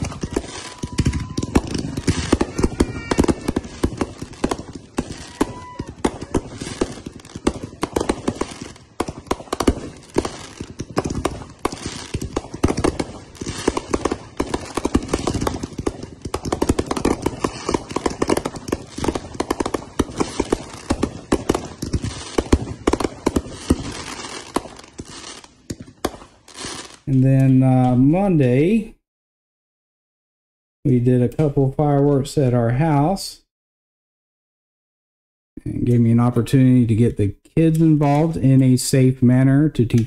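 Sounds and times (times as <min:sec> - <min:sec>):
fireworks bangs and crackling: 0:00.0 - 0:28.8, 0:37.6 - 0:40.0.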